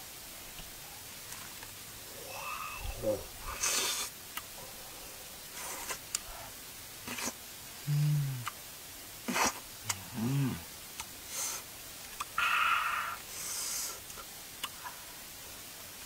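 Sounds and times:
man humming mm: 2.1 - 4.1, 5.8 - 8.6, 9.3 - 10.7
wet chewing and lip-smacking: 14.0 - 14.8.

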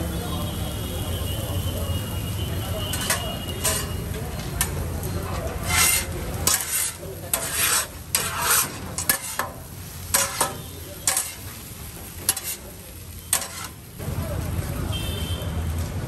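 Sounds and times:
food sizzling: 0.7 - 16.0
metal spatulas scraping griddle: 2.8 - 13.9
spatulas clanking on griddle: 2.8 - 13.9.

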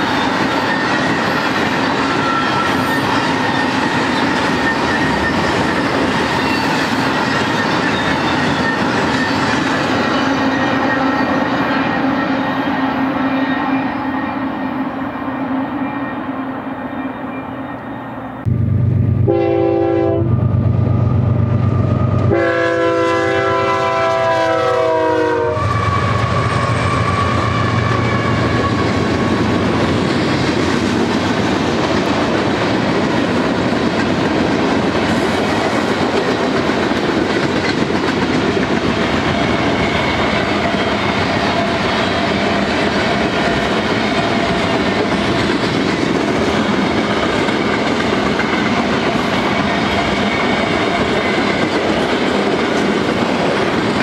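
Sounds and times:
train wheels clattering on rails: 0.0 - 14.3, 25.6 - 54.0
diesel locomotives rumbling: 0.0 - 54.0
locomotive horn blast: 18.5 - 20.4, 22.0 - 28.8.

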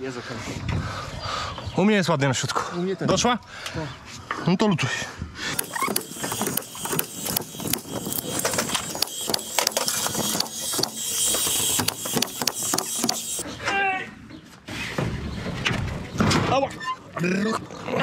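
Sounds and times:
nail gun firing: 5.6 - 13.4.

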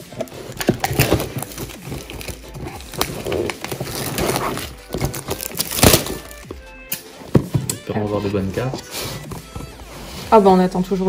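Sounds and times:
cardboard and wrapping rustling: 0.0 - 11.0.

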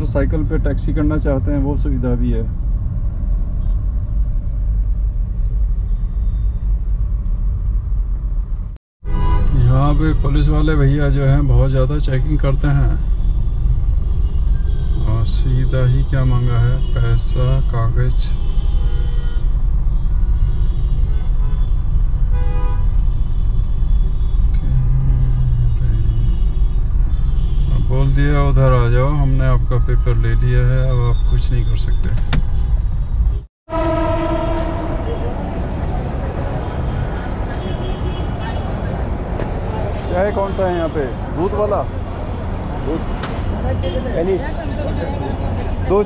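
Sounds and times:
car engine and road noise: 0.0 - 46.0
vehicle horns tooting: 9.0 - 10.9, 12.4 - 32.3, 33.7 - 35.7, 36.5 - 38.9, 40.0 - 41.9, 42.8 - 44.6.

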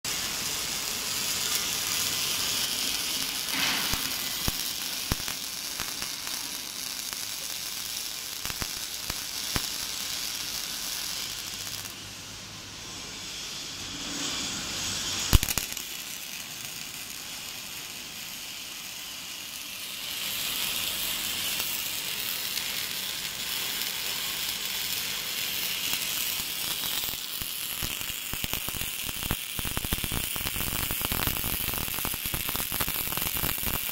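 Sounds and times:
welding arc crackling: 0.1 - 33.9.

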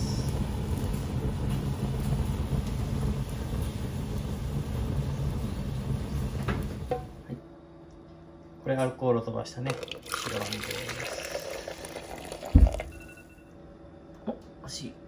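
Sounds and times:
wine boiling with flames: 0.0 - 7.4, 9.2 - 13.3.

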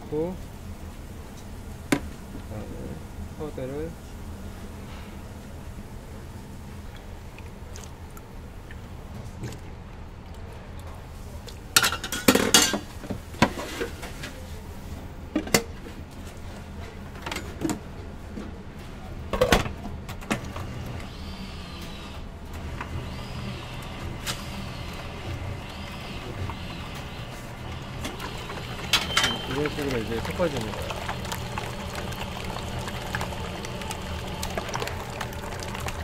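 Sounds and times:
metal bowls and utensils clanking: 28.2 - 31.1.

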